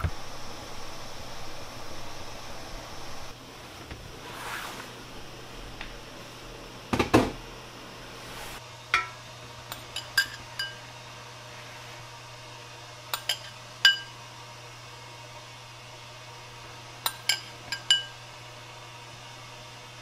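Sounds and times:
steel cookware clattering: 9.0s - 10.8s, 13.2s - 14.1s, 17.1s - 18.2s
spoon clinking on bowl and shells: 9.7s - 10.8s, 13.2s - 14.1s, 17.1s - 18.2s.

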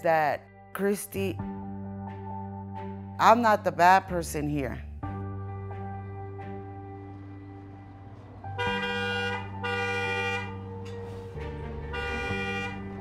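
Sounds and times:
background music: 0.0s - 13.0s
car horn honking: 8.6s - 10.8s, 11.7s - 13.0s.

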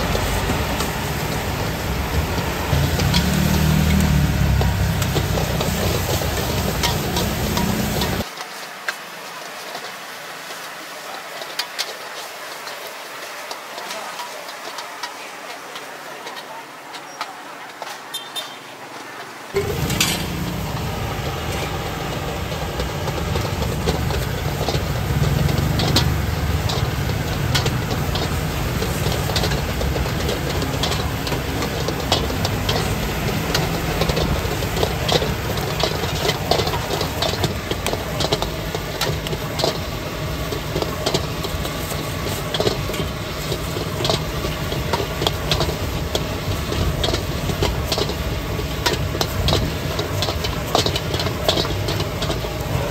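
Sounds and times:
gas stove burner rumbling: 0.0s - 8.3s, 19.6s - 52.9s
utensils clinking on pans: 0.0s - 8.6s, 19.6s - 52.9s.

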